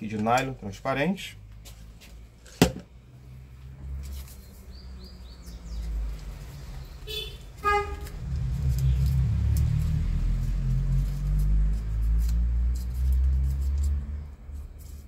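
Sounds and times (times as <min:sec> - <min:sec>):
vehicle engine rumble: 0:01.4 - 0:15.0
short horn toots: 0:07.1 - 0:08.2.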